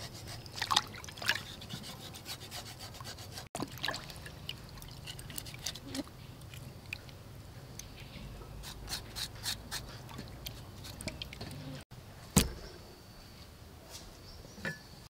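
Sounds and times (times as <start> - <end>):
knife scraping wet pork skin: 0.0 - 3.5, 5.0 - 6.1, 8.6 - 11.3.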